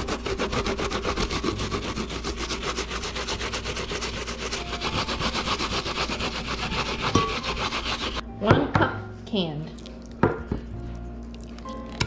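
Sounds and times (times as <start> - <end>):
apple grated on metal grater: 0.0 - 8.2.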